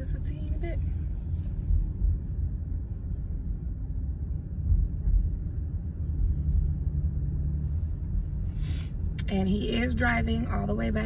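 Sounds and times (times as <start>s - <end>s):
car interior rumble: 0.0s - 11.0s.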